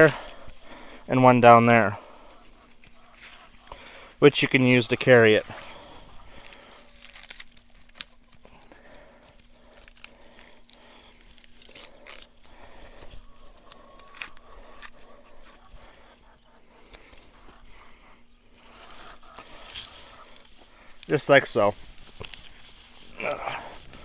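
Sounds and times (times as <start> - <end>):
faint steady hum: 0.0 - 24.0
plastic netting rustling: 5.6 - 8.7.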